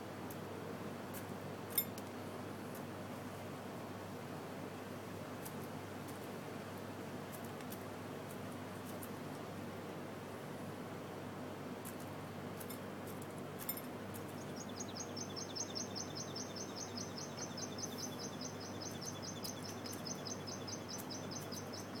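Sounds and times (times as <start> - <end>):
small bird chirping: 14.3 - 22.0.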